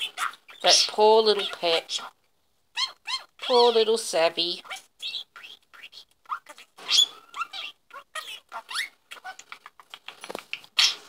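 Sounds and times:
budgerigar chattering: 0:00.0 - 0:02.2.

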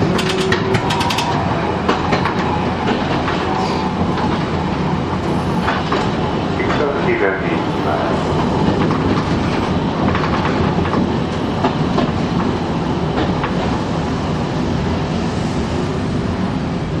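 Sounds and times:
wheels clacking over rail joints: 0:00.0 - 0:07.3, 0:08.2 - 0:13.8
tram rumbling: 0:00.0 - 0:17.0.

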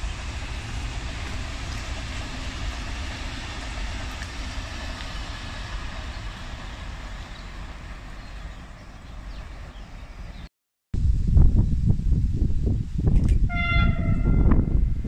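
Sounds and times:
train rumbling past: 0:00.0 - 0:10.5, 0:13.2 - 0:15.0.

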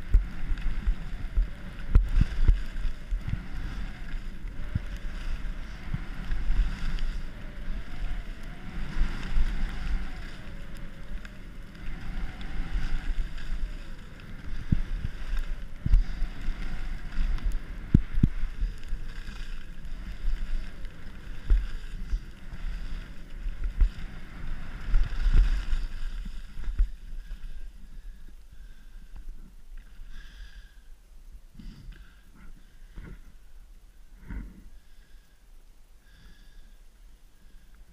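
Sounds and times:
wind buffeting microphone: 0:00.0 - 0:29.6
skis sliding on snow: 0:00.0 - 0:30.8.

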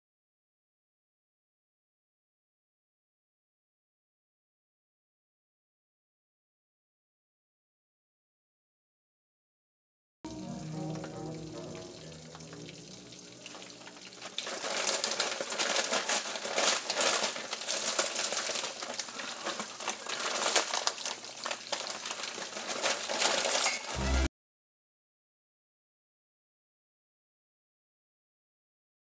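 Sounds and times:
broccoli sizzling in a saucepan: 0:10.3 - 0:24.3
vegetables poured from a bag: 0:13.5 - 0:24.3.

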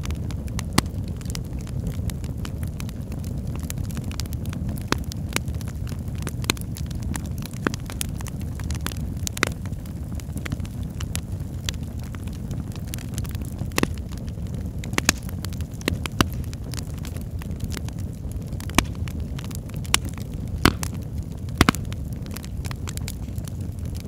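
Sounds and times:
fire crackling and popping: 0:00.0 - 0:24.0
low rumble of flames: 0:00.0 - 0:24.0.

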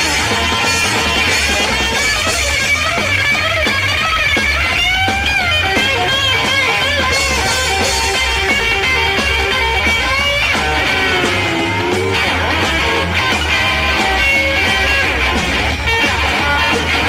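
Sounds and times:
drums keeping steady beat: 0:00.0 - 0:17.0
electric guitar lead: 0:00.0 - 0:17.0
upright bass: 0:00.0 - 0:17.0.

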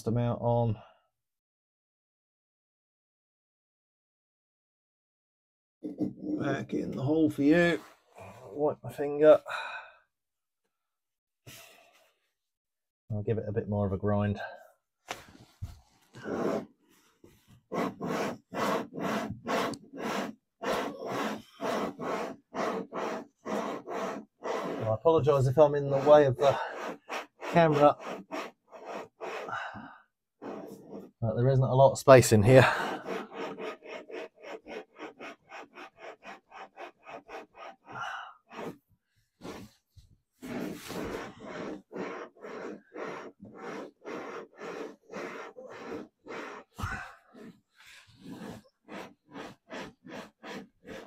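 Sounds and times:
valve plug grinding rasp: 0:17.6 - 0:31.1, 0:32.4 - 0:38.8, 0:40.4 - 0:51.0.

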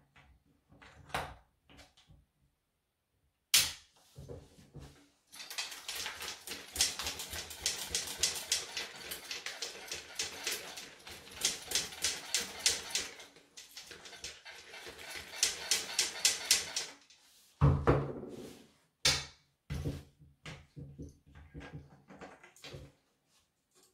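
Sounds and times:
chainsaw parts rattling: 0:05.3 - 0:17.2.

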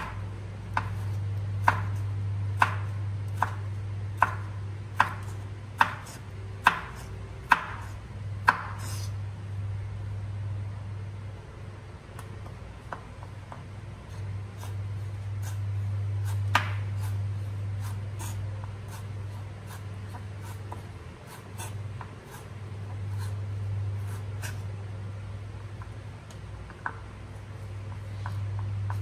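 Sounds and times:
knife chopping on wooden board: 0:00.0 - 0:02.0, 0:02.6 - 0:09.1, 0:16.2 - 0:17.2
steady low hum: 0:00.0 - 0:29.0.

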